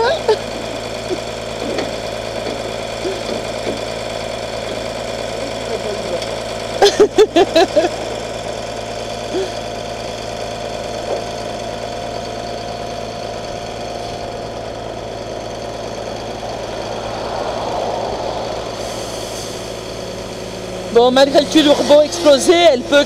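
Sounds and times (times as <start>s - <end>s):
man laughing: 0.0s - 1.8s, 6.8s - 8.1s, 9.3s - 9.6s
vehicle engine idling: 0.0s - 23.0s.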